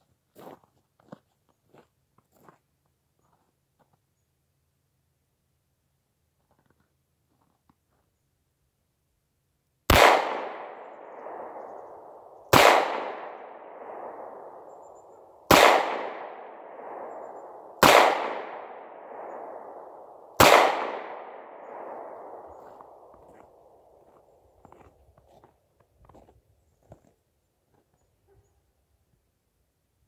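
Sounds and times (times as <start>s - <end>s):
revolver shots echoing: 15.5s - 23.1s.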